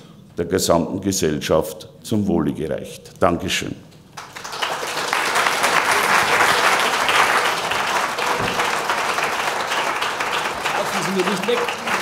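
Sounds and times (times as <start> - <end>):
large audience applauding: 4.2 - 12.0.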